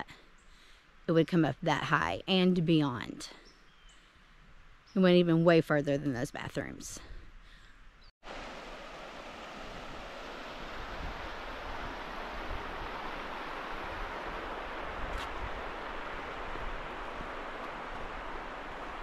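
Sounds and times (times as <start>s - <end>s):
water rushing over rocks: 8.2s - 19.0s.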